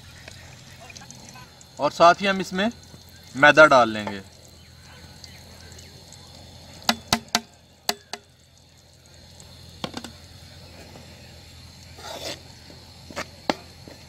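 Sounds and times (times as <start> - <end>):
knocks on metal pot: 6.9 - 8.3
metal spoon scraping pot: 12.0 - 12.4.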